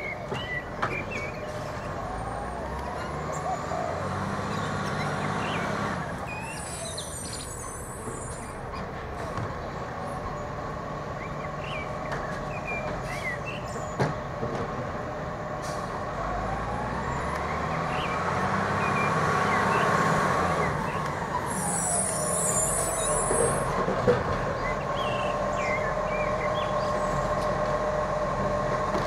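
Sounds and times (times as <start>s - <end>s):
garbage truck diesel engine: 0.0s - 29.0s
small birds chirping: 2.8s - 8.9s, 9.5s - 14.4s, 17.2s - 23.7s, 24.4s - 27.6s.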